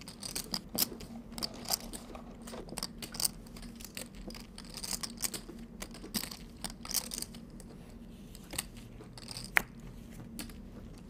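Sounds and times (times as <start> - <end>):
poker chips clicking: 2.8 - 7.4, 8.6 - 9.6.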